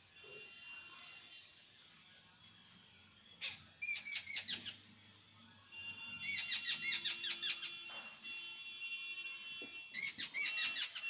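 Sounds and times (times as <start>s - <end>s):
birds chattering harshly: 10.0s - 11.0s.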